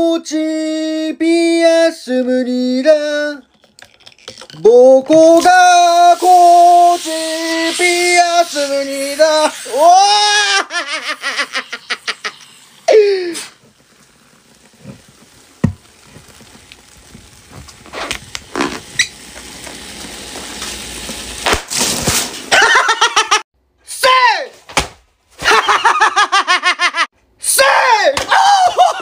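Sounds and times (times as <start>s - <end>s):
person laughing: 10.0s - 13.3s, 22.5s - 23.4s, 25.4s - 27.1s, 28.4s - 29.0s.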